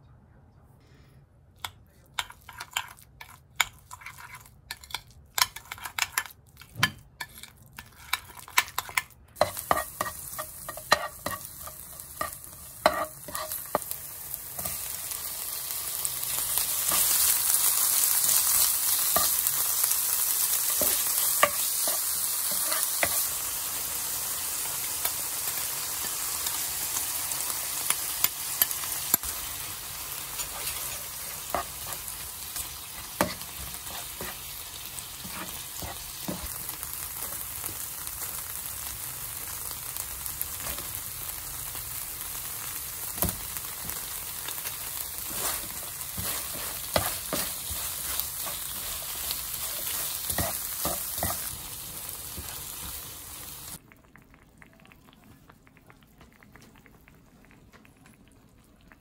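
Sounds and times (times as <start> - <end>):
spatula scraping and tapping pan: 2.2 - 14.0, 20.7 - 23.3, 30.4 - 34.5, 35.1 - 36.5, 45.2 - 53.0
oil sizzling in frying pan: 7.2 - 53.9.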